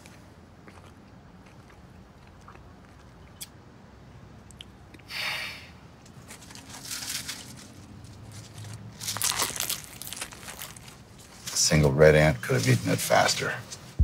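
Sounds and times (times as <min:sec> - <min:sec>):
chewing and biting: 0:00.0 - 0:03.6, 0:08.4 - 0:11.1
paper wrapper crinkling: 0:06.2 - 0:11.8.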